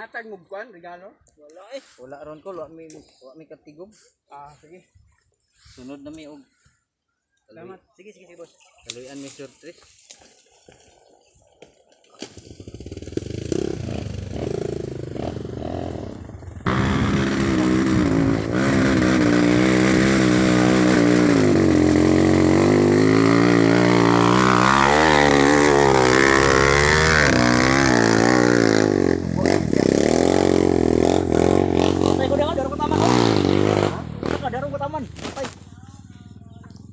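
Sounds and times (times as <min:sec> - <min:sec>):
motorcycle engine revving: 0:12.2 - 0:36.9.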